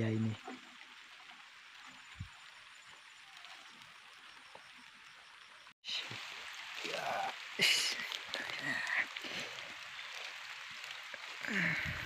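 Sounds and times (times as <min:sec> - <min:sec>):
light rain hiss: 0:00.0 - 0:12.0.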